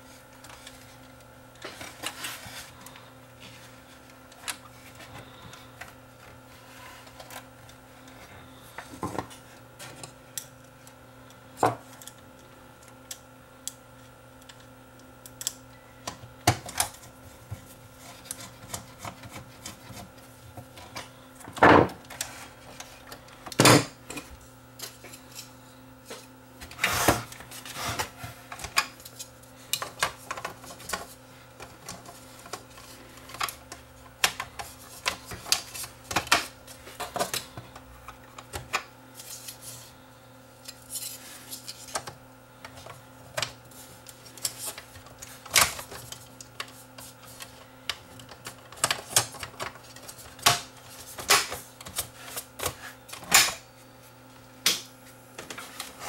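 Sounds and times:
faint steady hum: 0.0 - 56.0.

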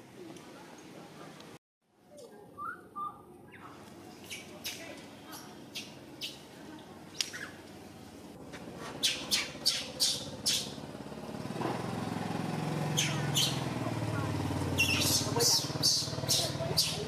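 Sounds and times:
low engine hum: 5.1 - 17.0.

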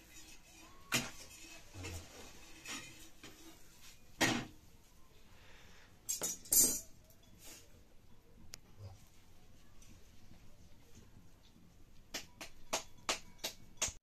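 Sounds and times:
tongs clattering on iron griddle: 0.0 - 3.6.

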